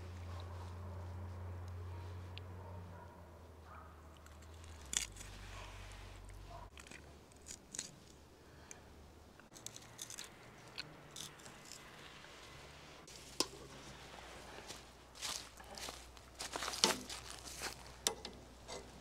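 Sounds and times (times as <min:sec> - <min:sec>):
metal skewer scrapes and clicks: 0:04.2 - 0:05.4.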